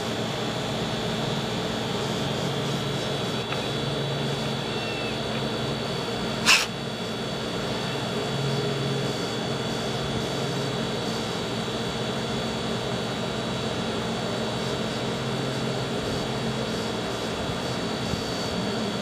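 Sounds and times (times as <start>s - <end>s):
steady background hum: 0.0s - 19.0s
cat hissing: 4.4s - 5.4s, 6.4s - 6.8s.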